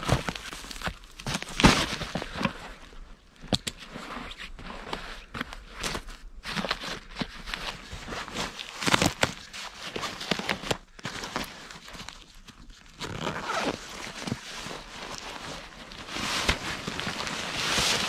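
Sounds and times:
backpack fabric rustling: 0:12.9 - 0:18.0.

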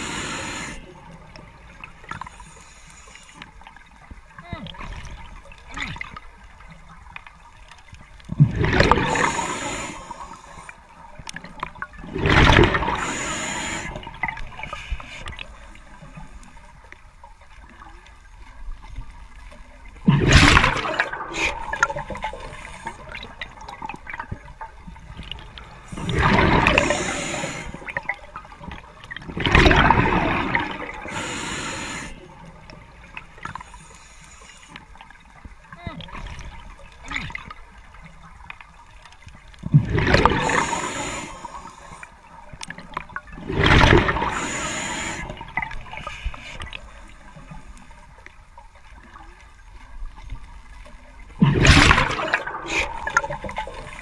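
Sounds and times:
gurgling water: 0:00.0 - 0:54.0
diver exhaling bubbles: 0:08.4 - 0:10.3, 0:25.9 - 0:28.1, 0:51.4 - 0:54.0.

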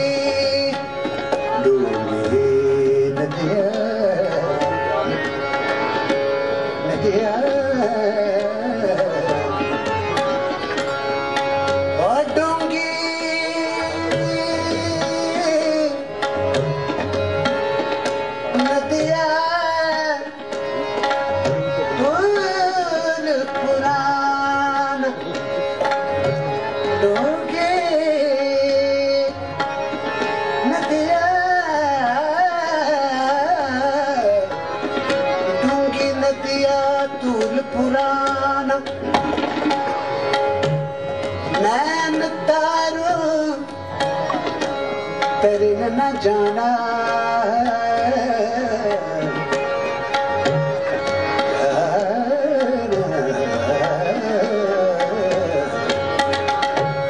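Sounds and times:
man singing: 0:00.0 - 0:05.2, 0:06.8 - 0:09.8, 0:11.9 - 0:16.2, 0:18.5 - 0:20.5, 0:21.4 - 0:25.6, 0:26.3 - 0:29.6, 0:30.6 - 0:34.6, 0:35.4 - 0:39.2, 0:41.4 - 0:43.9, 0:45.2 - 0:49.6, 0:51.4 - 0:57.0
harmonium drone: 0:00.0 - 0:57.0
tabla playing: 0:00.0 - 0:57.0.

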